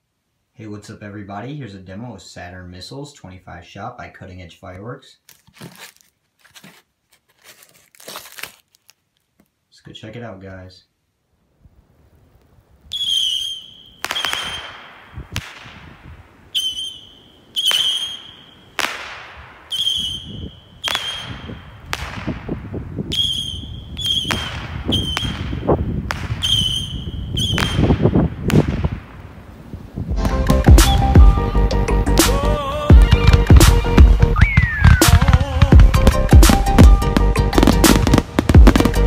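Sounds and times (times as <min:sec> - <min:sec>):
whistling rockets: 0:12.9 - 0:29.0, 0:30.8 - 0:31.3, 0:33.0 - 0:39.0
firework bang with echo: 0:34.4 - 0:39.0.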